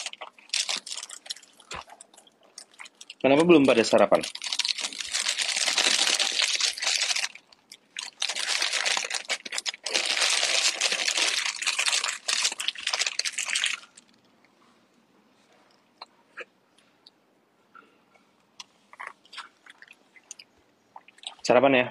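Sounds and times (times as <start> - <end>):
food wrapper crinkling: 0.0 - 14.3.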